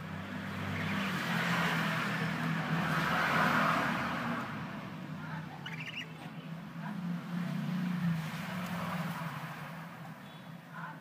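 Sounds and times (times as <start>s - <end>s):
budgerigar chirping: 0.6s - 1.4s, 5.5s - 6.3s.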